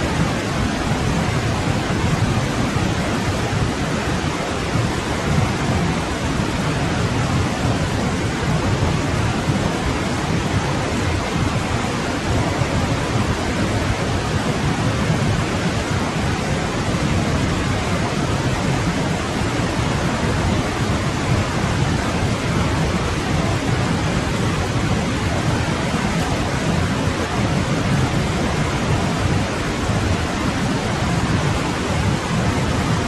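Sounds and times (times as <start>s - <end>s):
stream water rushing: 0.0s - 33.0s.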